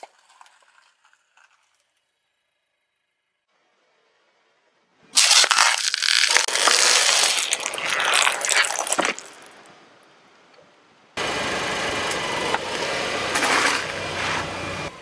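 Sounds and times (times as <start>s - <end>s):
tyre crunching ice cream cone: 5.2s - 9.6s.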